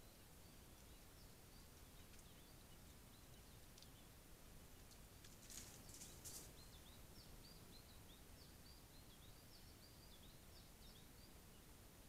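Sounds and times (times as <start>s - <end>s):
brief rustle: 4.8s - 6.6s.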